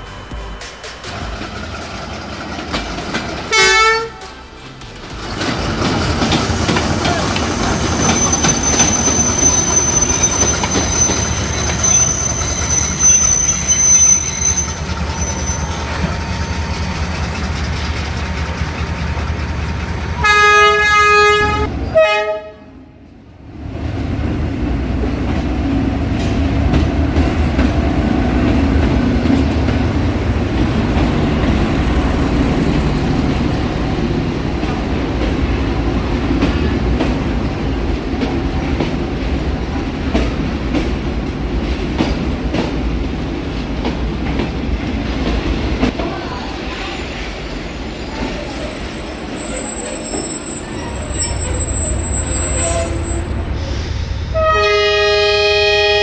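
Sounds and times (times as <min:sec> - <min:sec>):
model trains rumbling on track: 0:01.0 - 0:13.7, 0:14.6 - 0:22.6
train horn blast: 0:03.5 - 0:04.3, 0:20.2 - 0:22.9, 0:52.5 - 0:53.4, 0:54.3 - 0:56.0.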